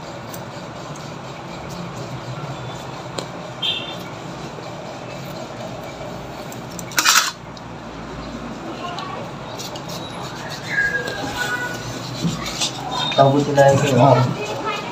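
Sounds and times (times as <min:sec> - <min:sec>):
high squeak: 0:09.9 - 0:14.0.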